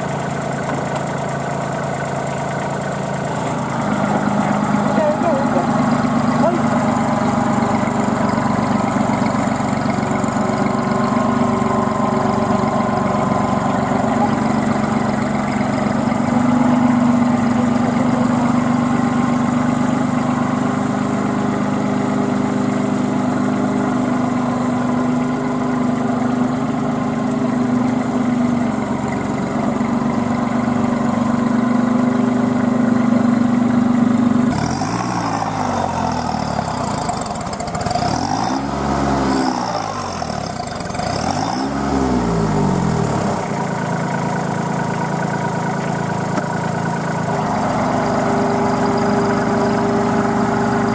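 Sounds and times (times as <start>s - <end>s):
tractor diesel engine labouring: 0.0s - 50.9s.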